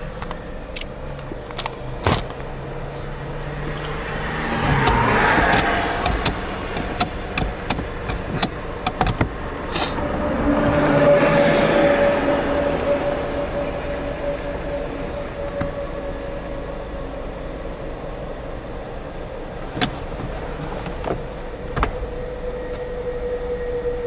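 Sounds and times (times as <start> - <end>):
car engine and road noise: 0.0 - 24.0
sharp clicks and knocks: 4.6 - 9.8.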